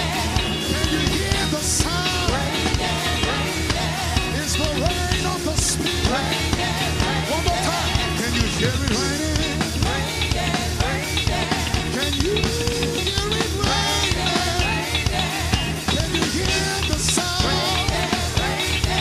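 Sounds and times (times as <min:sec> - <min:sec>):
band with drums and bass: 0:00.0 - 0:19.0
man singing into microphone: 0:00.7 - 0:02.5, 0:04.3 - 0:06.4, 0:07.3 - 0:10.0, 0:11.9 - 0:14.8, 0:15.9 - 0:17.9.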